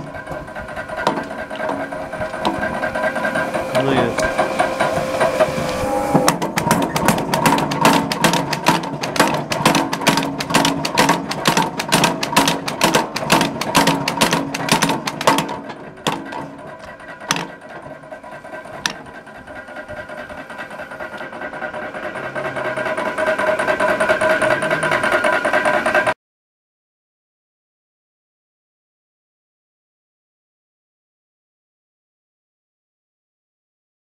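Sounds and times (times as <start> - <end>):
machinery humming: 0.0 - 26.2
power hammer blows on hot steel: 0.0 - 26.2.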